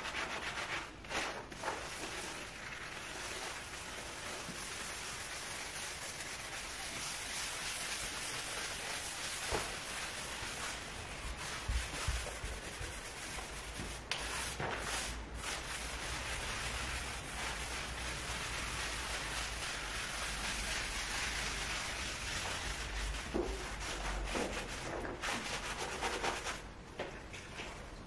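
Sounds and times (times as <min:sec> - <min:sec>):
sponge scrubbing wooden floor: 0:00.0 - 0:26.6.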